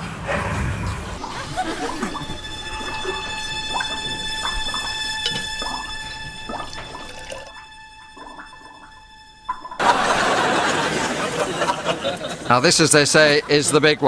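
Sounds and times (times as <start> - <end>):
liquid bubbling and dripping: 1.3 - 9.8
loud crowd noise: 9.8 - 12.7.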